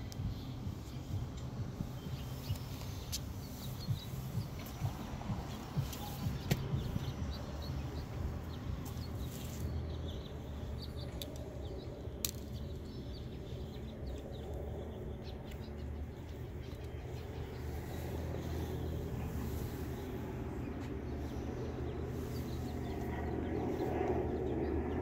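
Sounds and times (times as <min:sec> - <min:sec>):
steady low street hum: 0:00.0 - 0:25.0.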